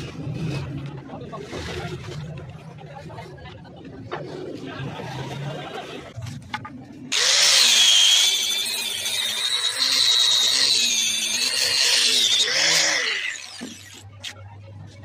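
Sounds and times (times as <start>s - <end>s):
angle grinder sanding wood: 7.1s - 14.0s.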